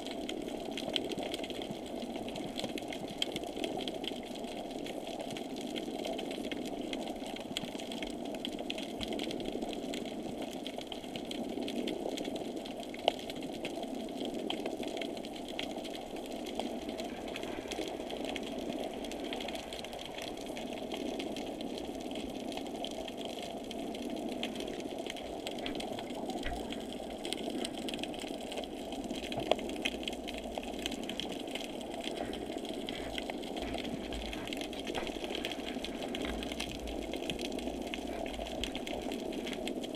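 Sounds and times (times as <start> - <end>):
muffled motor whirring underwater: 25.6 - 28.2, 32.1 - 39.9.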